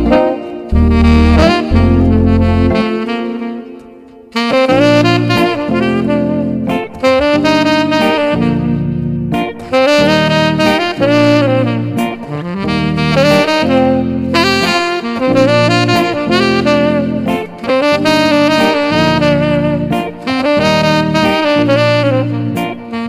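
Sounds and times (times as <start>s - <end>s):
bass line: 0.0s - 3.2s, 4.6s - 14.6s
saxophone melody: 0.0s - 23.0s.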